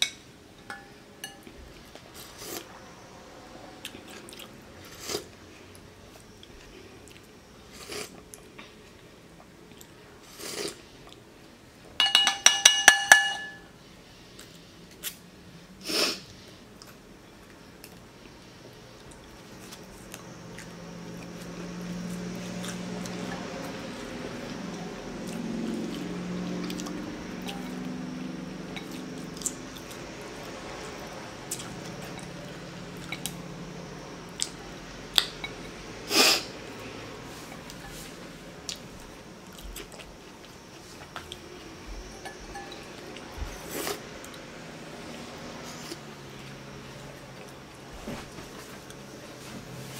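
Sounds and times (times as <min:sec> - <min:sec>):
low steady hum: 0:00.0 - 0:49.9
person chewing: 0:19.0 - 0:23.2, 0:25.2 - 0:28.0, 0:30.9 - 0:32.3, 0:38.7 - 0:41.4.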